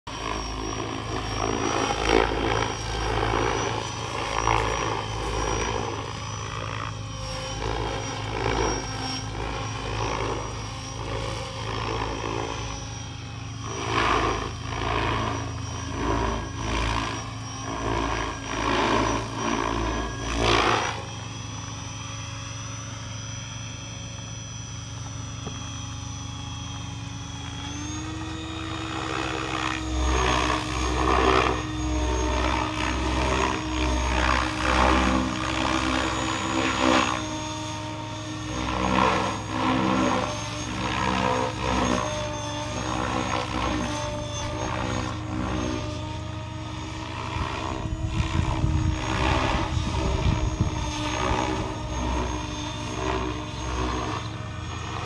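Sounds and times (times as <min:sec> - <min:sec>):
electric motor whine: 0:00.0 - 0:55.0
helicopter rotor blades whooshing: 0:00.0 - 0:55.0.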